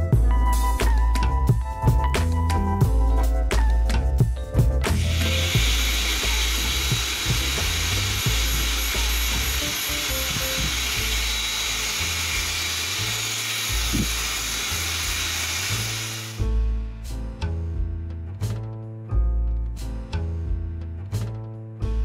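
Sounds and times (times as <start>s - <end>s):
background music with bass line: 0.0s - 22.0s
blower rushing air with whine: 4.9s - 16.4s.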